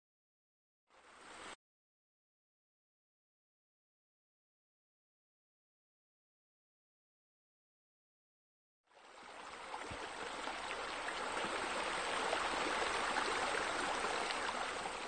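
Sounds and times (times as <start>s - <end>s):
running and splashing water: 8.9s - 15.0s.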